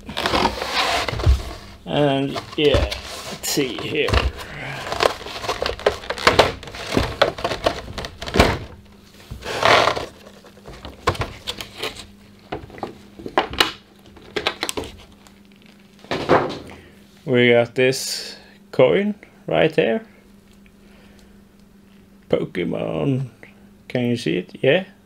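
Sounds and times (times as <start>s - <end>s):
plastic crinkling rustle: 0.0s - 12.1s.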